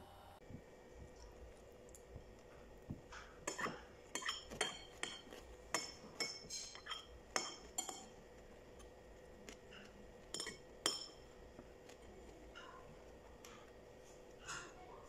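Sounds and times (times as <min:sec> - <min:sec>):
spoon clinking on ceramic bowl: 0:03.5 - 0:08.2, 0:10.2 - 0:11.3.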